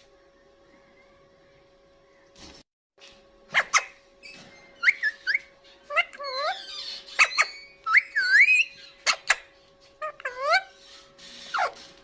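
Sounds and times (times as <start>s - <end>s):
parakeet whistled calls: 3.5s - 9.5s.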